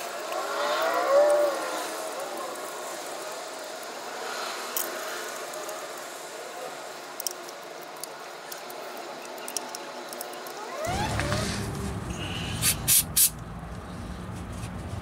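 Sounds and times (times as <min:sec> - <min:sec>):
steady background hiss: 0:00.0 - 0:10.6
small clicks and handling noises: 0:00.0 - 0:11.3.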